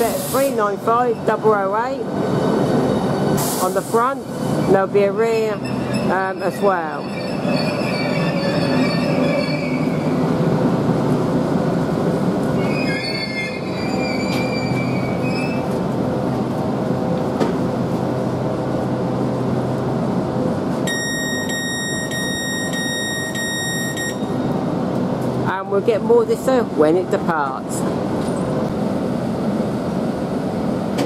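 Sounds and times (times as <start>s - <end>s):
train rumble and hum: 0.0s - 20.9s, 24.0s - 31.0s
high squealing: 5.4s - 10.4s, 12.6s - 15.7s.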